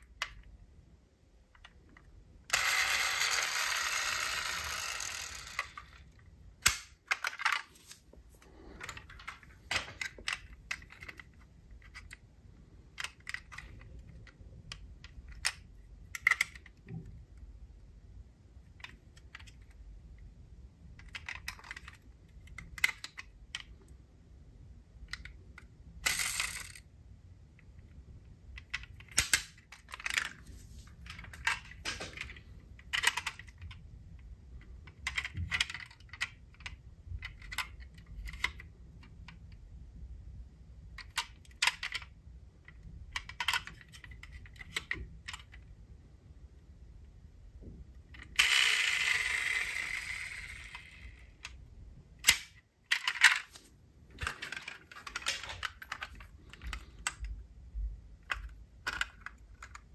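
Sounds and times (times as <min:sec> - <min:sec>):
toy cars clicking together: 0:02.5 - 0:07.7, 0:12.9 - 0:17.0, 0:21.0 - 0:23.7, 0:25.0 - 0:26.9, 0:28.5 - 0:30.4, 0:31.0 - 0:33.8, 0:34.9 - 0:39.5, 0:41.0 - 0:45.6, 0:48.1 - 0:51.6, 0:52.2 - 0:53.6, 0:54.2 - 0:57.3, 0:58.2 - 0:59.9
toy cars rattling: 0:02.5 - 0:07.8, 0:26.0 - 0:26.9, 0:48.2 - 0:51.4, 0:54.2 - 0:57.2.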